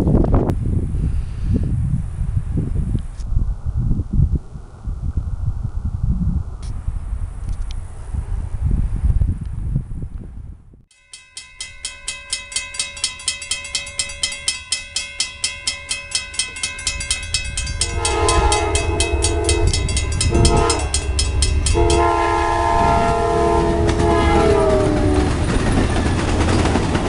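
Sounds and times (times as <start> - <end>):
low train rumble: 0.0 - 27.0
crossing signal bell ringing: 10.9 - 26.7
train horn blasts: 17.4 - 25.6.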